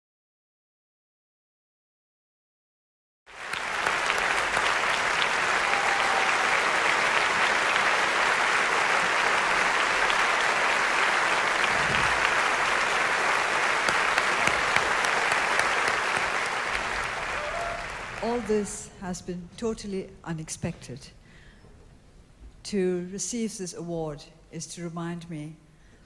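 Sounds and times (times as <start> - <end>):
audience clapping: 3.3 - 18.8.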